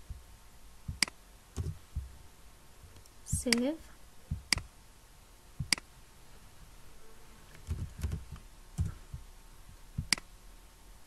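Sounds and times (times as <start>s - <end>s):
soft keystrokes typing: 7.6s - 9.0s.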